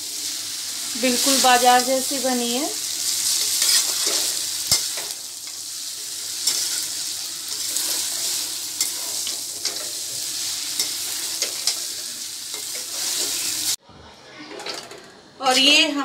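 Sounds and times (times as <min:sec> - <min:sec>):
noodles sizzling in hot oil: 0:00.0 - 0:13.8
metal spatula scraping pan: 0:03.1 - 0:05.2, 0:06.0 - 0:10.2.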